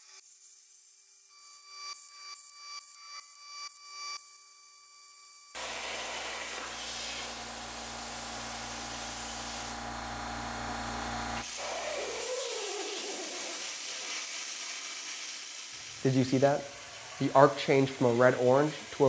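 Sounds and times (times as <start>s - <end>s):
plasma cutter hissing: 5.6s - 9.8s, 11.4s - 19.0s.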